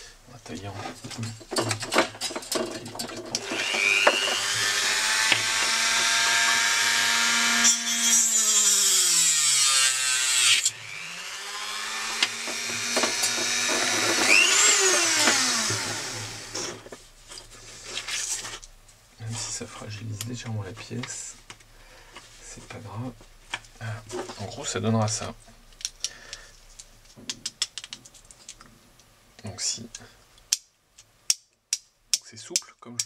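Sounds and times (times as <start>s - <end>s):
rotary tool grinding plastic: 1.4s - 16.9s.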